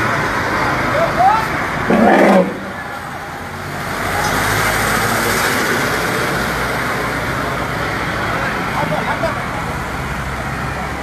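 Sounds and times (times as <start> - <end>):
passing motor vehicles: 0.0 - 11.0
brief loud sound: 1.9 - 3.1.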